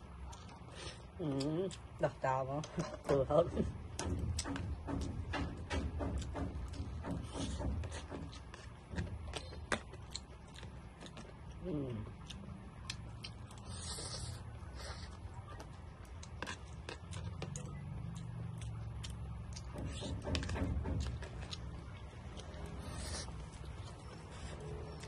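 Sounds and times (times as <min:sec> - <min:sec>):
person chewing and slurping noodles: 0:06.2 - 0:25.0.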